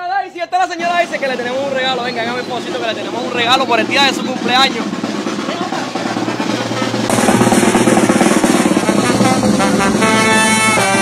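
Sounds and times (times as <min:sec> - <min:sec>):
snare and bass drum beats: 0:00.8 - 0:11.0
trombones and trumpets: 0:05.8 - 0:11.0.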